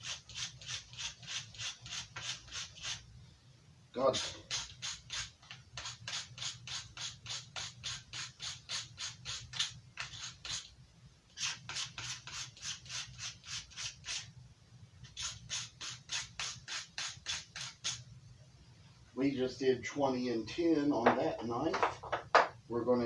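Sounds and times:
knife rasping through sharpener: 0.0 - 3.0, 4.2 - 10.7, 11.4 - 14.3, 15.1 - 18.0.

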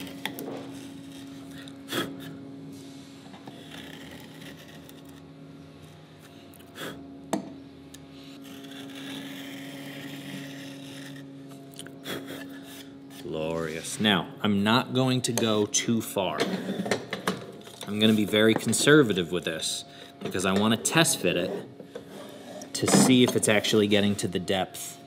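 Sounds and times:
router plane scraping wood: 0.0 - 1.7, 3.4 - 5.3, 8.1 - 11.3, 12.4 - 14.3, 17.7 - 24.5.

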